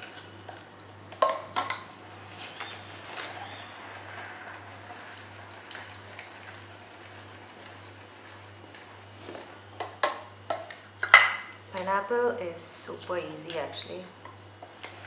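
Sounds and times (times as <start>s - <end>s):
hand juicer grinding: 0.0s - 11.1s.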